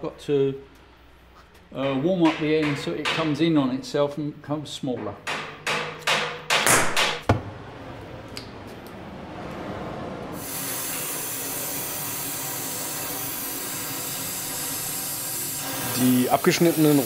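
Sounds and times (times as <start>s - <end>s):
cutting torch flame hissing: 10.3s - 17.0s.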